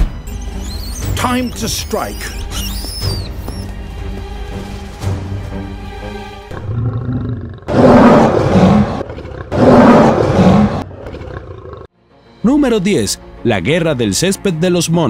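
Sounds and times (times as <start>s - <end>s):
background music: 0.0s - 8.9s, 11.9s - 15.0s
lion roaring: 6.5s - 11.9s.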